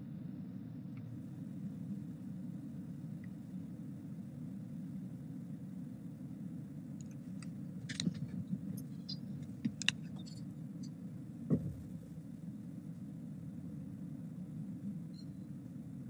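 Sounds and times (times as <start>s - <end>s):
low room hum: 0.0s - 16.0s
light clicks and taps: 7.0s - 11.0s
soft knock: 11.5s - 11.9s.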